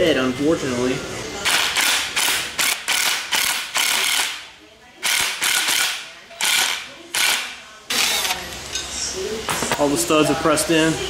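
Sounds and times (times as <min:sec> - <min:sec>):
impact wrench bursts: 0:01.4 - 0:08.4.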